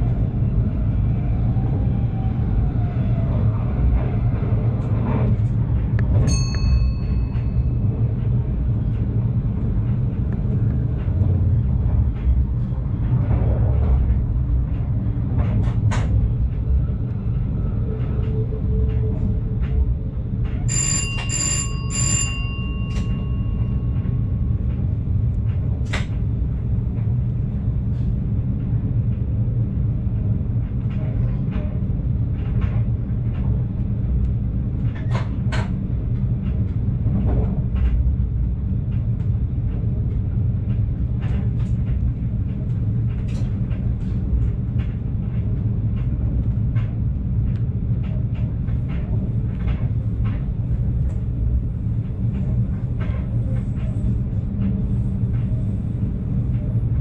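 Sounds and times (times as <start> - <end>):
train rumbling along track: 0.0 - 57.0
bell-like ding: 6.3 - 7.7, 20.7 - 24.0
clicks from the rails: 25.3 - 26.3, 34.8 - 38.1.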